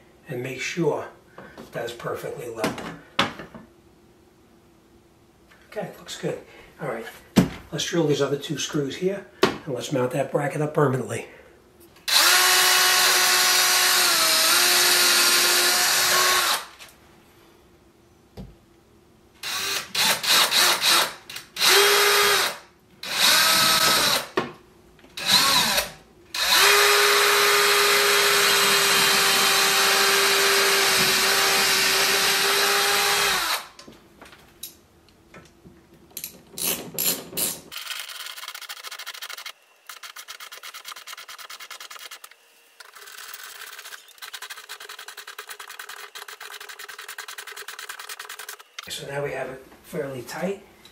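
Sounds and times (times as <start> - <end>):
cordless drill driving screws: 12.1 - 16.8, 19.4 - 24.4, 25.2 - 33.8.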